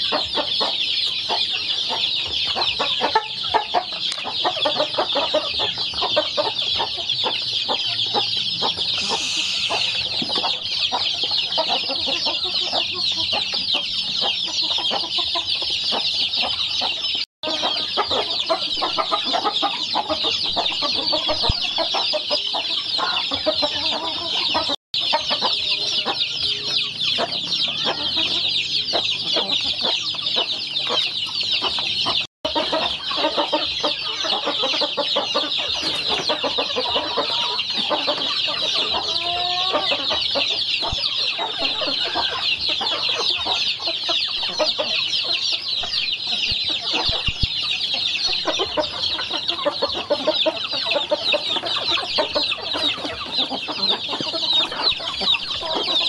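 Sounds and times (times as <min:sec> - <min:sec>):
lower bird calls: 0:00.0 - 0:32.2
chicks and ducklings peeping: 0:00.0 - 0:56.0.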